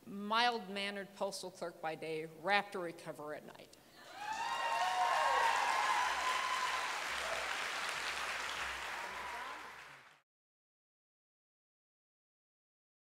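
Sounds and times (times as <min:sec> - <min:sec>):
audience cheering: 0:04.0 - 0:10.2
audience applauding: 0:04.2 - 0:10.2.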